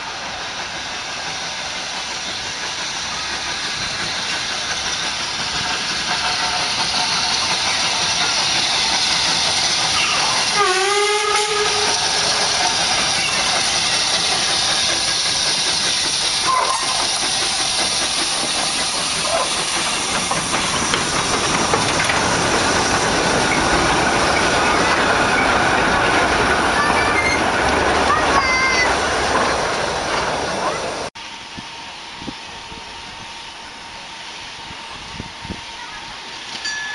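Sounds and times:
steam locomotive hissing: 0:00.0 - 0:36.9
train whistle blast: 0:10.1 - 0:12.1.

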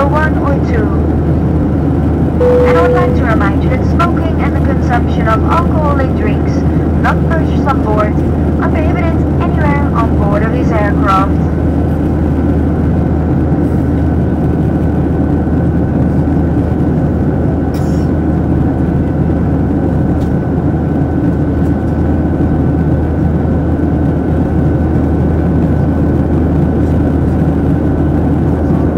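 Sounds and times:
jet engines humming: 0:00.5 - 0:17.6
thin steady whine: 0:02.4 - 0:11.3.

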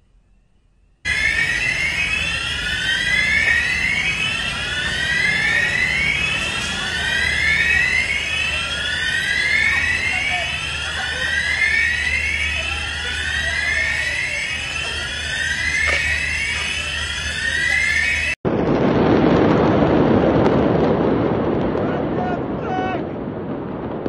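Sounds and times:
electronic alarm whooping: 0:00.3 - 0:18.4.

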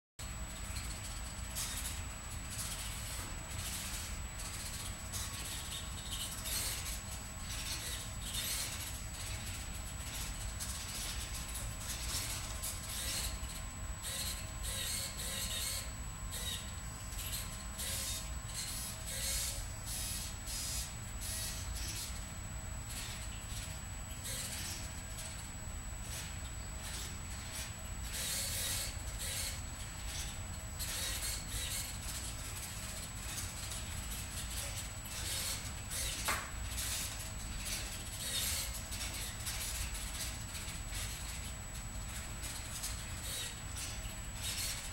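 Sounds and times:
low room hum: 0:00.2 - 0:44.9
small servo motors whirring: 0:03.7 - 0:09.4, 0:10.0 - 0:22.2, 0:24.2 - 0:24.8, 0:26.1 - 0:32.1, 0:34.6 - 0:39.8, 0:43.2 - 0:44.9.

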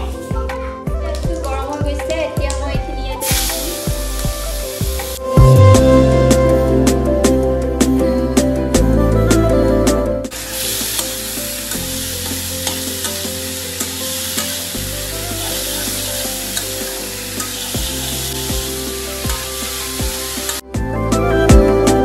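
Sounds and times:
vegetables sizzling in pan: 0:03.2 - 0:05.2, 0:10.3 - 0:20.6.

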